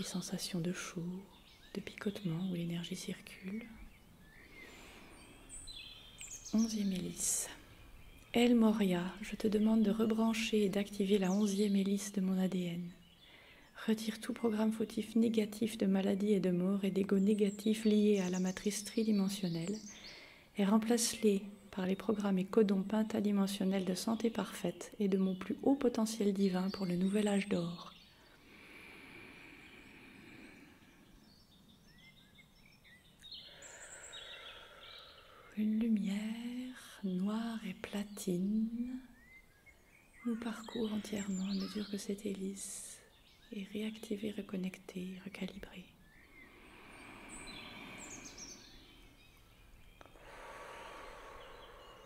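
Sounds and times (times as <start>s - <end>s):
bird-like chirps: 0.0s - 14.9s, 23.8s - 52.0s
soft steady hiss: 0.0s - 52.0s
high falling bird chirps: 37.6s - 43.6s, 45.3s - 52.0s.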